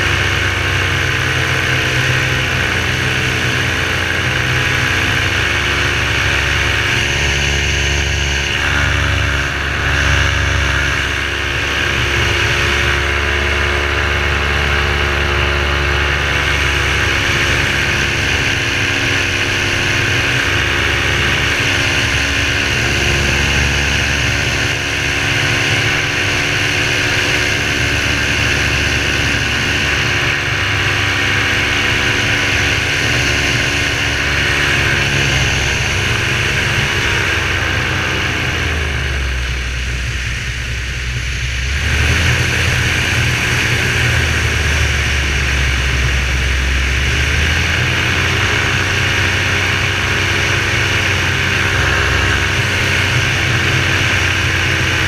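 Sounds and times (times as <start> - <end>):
paramotor engine and propeller: 0.0 - 55.0.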